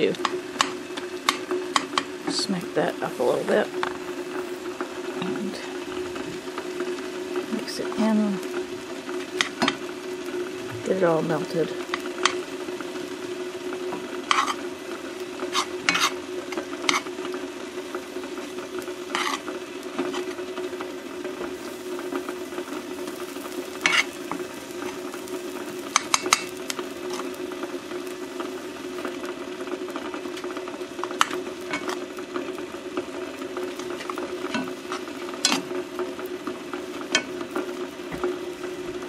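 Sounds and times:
eggs sizzling in a pan: 0.0 - 39.0
utensil scraping and knocking pan: 14.3 - 14.6, 15.5 - 17.1, 19.1 - 19.4, 23.8 - 25.0.

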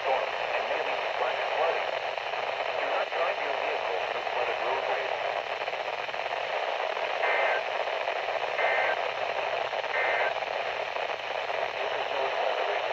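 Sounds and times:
radio static hiss: 0.0 - 12.9
warbling data bursts: 10.0 - 10.3.

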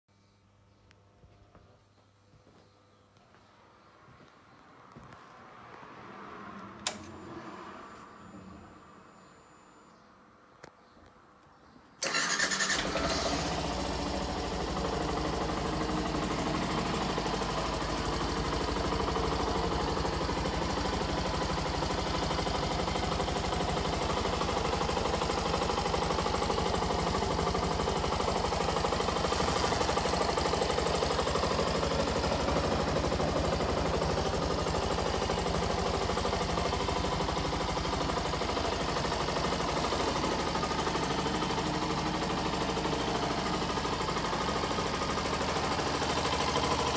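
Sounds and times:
motorcycle engine idling: 12.0 - 46.9.

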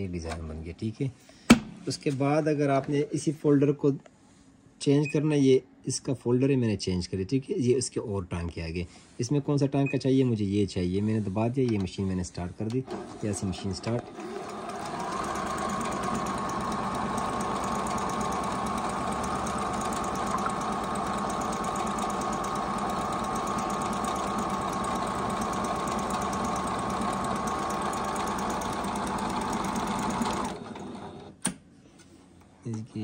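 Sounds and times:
sewing machine running: 12.8 - 31.3.

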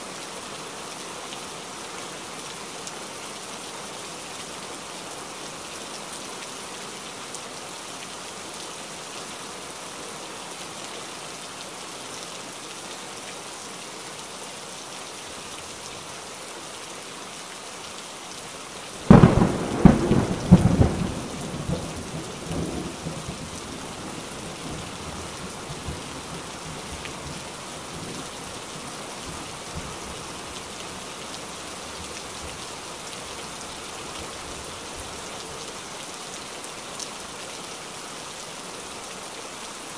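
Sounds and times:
steady rain falling: 0.0 - 39.9
thunderclap rumbling: 19.1 - 24.8.

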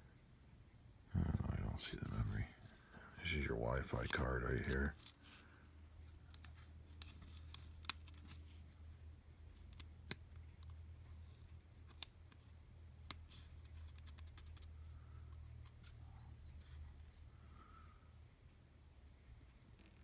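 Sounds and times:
low steady hum: 0.0 - 20.0
fingers clicking laptop parts: 6.3 - 8.5, 11.8 - 14.7.

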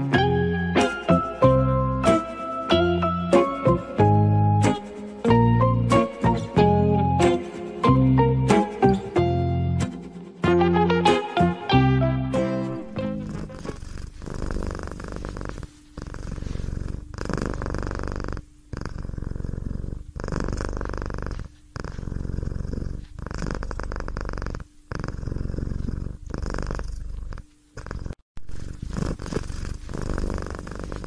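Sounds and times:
cat purring: 12.8 - 31.0.

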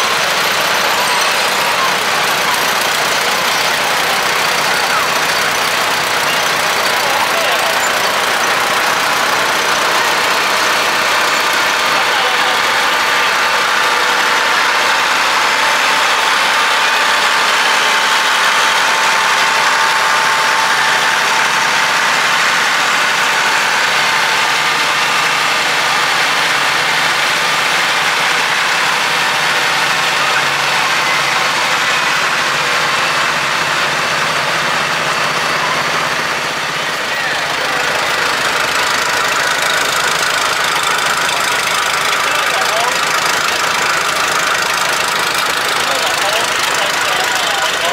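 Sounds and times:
crowd chatter: 0.0 - 47.9
tractor engines running: 0.0 - 47.9.

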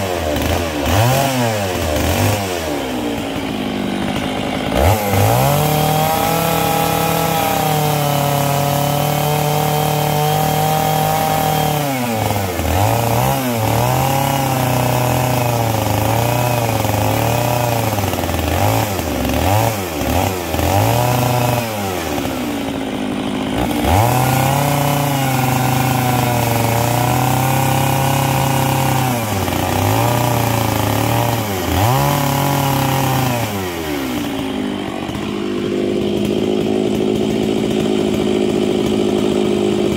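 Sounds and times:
chainsaw engine revving: 0.0 - 39.9.

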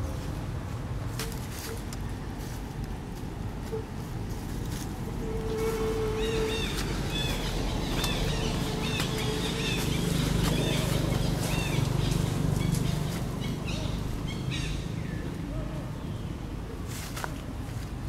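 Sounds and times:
low outdoor hum: 0.0 - 18.0
bird chirping: 6.0 - 15.3.

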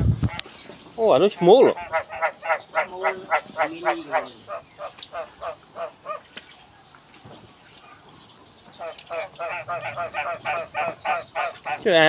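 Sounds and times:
rapid animal calls: 1.0 - 6.4, 8.8 - 12.0.

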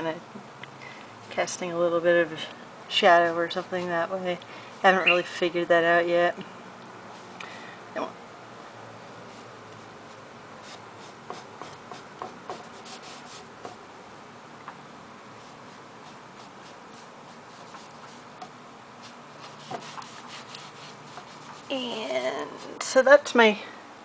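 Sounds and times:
sponge dabbing paint: 19.0 - 23.0.

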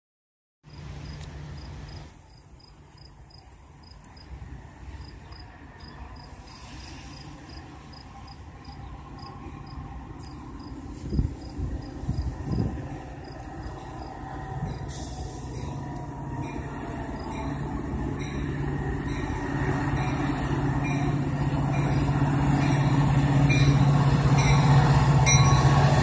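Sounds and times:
train rumble: 0.7 - 26.0
crickets chirping: 1.0 - 4.3, 7.0 - 14.9.

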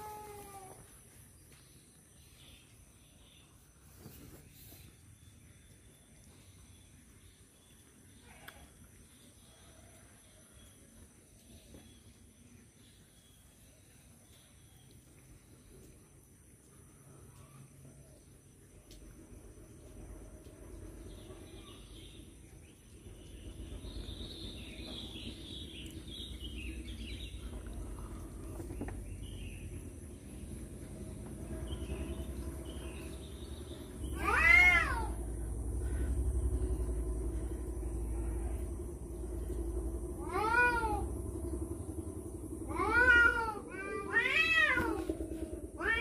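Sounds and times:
cat meowing loudly: 0.0 - 0.9, 34.2 - 35.2, 40.2 - 41.0, 42.7 - 45.2, 45.8 - 46.0.

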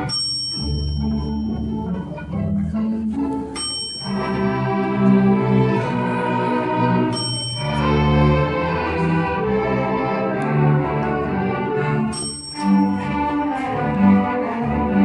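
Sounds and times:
bell ring: 0.0 - 1.9, 3.6 - 5.6, 6.8 - 8.8, 12.1 - 13.3
string orchestra playing: 0.0 - 15.0.

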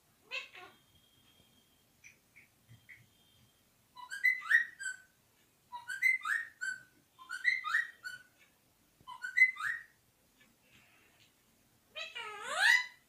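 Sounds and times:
parrot whistling: 4.0 - 5.1, 5.8 - 8.3, 9.1 - 9.9.

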